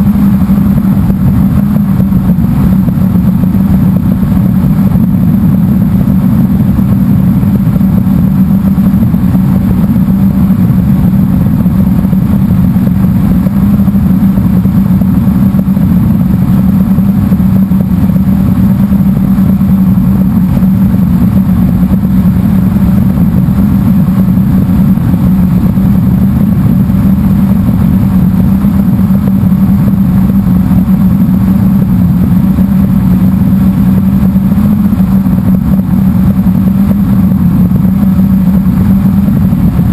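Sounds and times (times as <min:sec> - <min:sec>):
quadcopter propellers whirring: 0:00.0 - 0:39.9.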